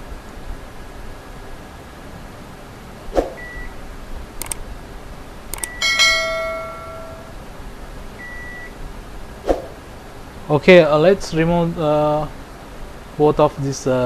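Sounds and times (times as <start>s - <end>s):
short faint beep: 3.4s - 3.8s, 5.6s - 6.0s, 8.2s - 8.8s
mouse clicks: 4.4s - 4.6s, 5.5s - 5.8s
bell chime: 5.6s - 7.4s.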